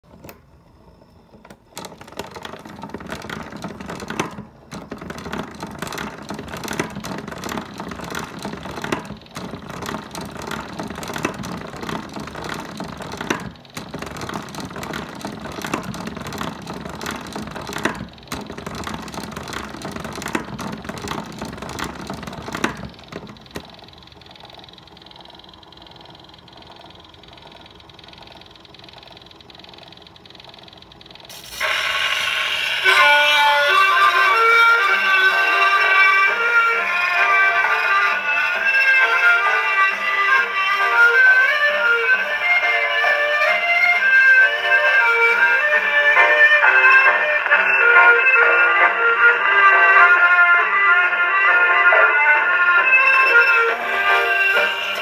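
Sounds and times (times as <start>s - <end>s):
spring motor whirring: 0.0s - 36.4s
gramophone crank ratcheting: 1.7s - 31.7s.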